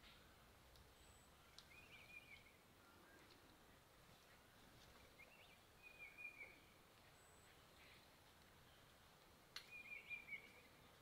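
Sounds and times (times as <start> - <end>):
faint bird chirps: 0.0 - 11.0.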